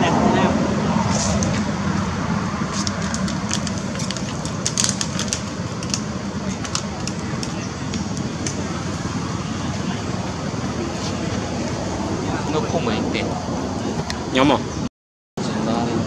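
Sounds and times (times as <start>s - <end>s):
low background rumble: 0.0s - 14.9s
leaves and twigs crackling underfoot: 2.7s - 8.6s.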